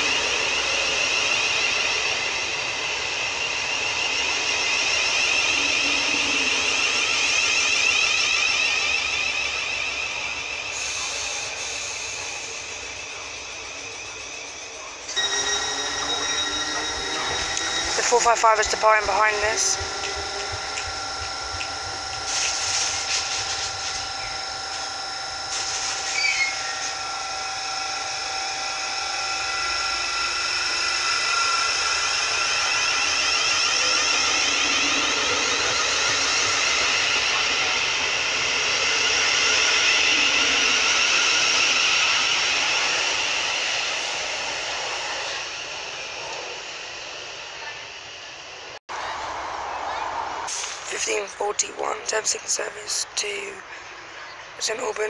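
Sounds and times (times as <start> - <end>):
electric train motors whining: 0.0 - 55.0.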